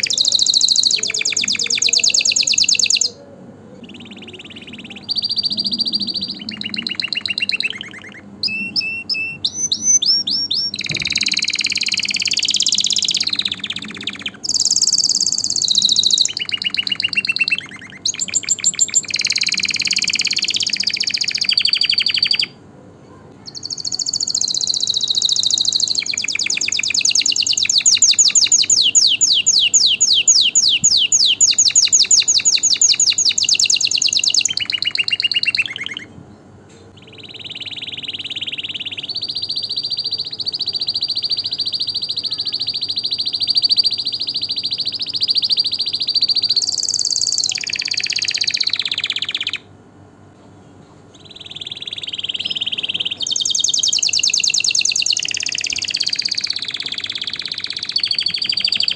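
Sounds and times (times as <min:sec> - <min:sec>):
canary singing trills: 0:00.0 - 0:49.8, 0:50.8 - 0:58.9.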